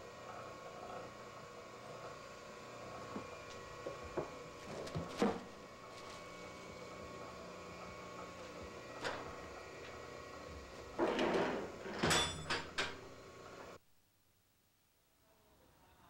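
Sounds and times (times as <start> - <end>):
plastic sheet rustling and crackling: 4.6 - 6.4.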